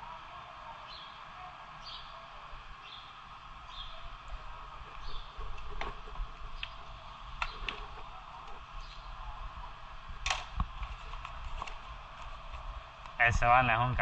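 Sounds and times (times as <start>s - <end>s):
steady background hum: 0.0s - 14.0s
paper crackling rustle: 10.6s - 13.1s.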